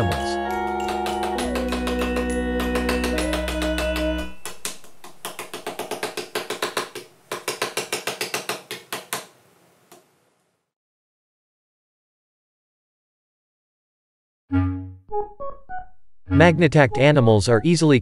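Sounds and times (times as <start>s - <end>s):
background music with held tones: 0.0s - 6.1s, 14.5s - 17.9s.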